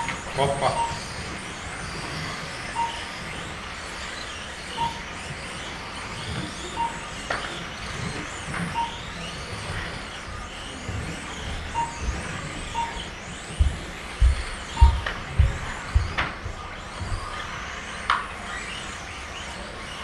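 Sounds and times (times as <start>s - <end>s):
lap timer beeps: 0.0s - 1.5s, 2.6s - 3.4s, 4.7s - 5.3s, 6.3s - 7.4s, 8.6s - 9.3s, 11.4s - 16.1s
toy car motors whining: 0.0s - 20.0s.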